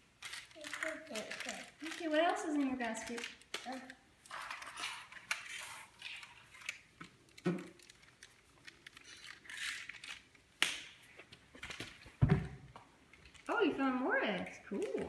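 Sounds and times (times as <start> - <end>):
plastic wrappers crinkling: 0.0 - 12.2, 13.0 - 15.0
plastic toys clicking on tile: 0.2 - 10.9.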